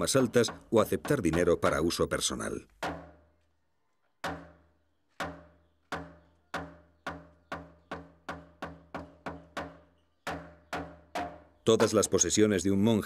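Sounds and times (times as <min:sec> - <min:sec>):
log drum hollow knocks: 0:00.0 - 0:02.0, 0:02.7 - 0:03.2, 0:04.2 - 0:04.6, 0:05.2 - 0:12.4.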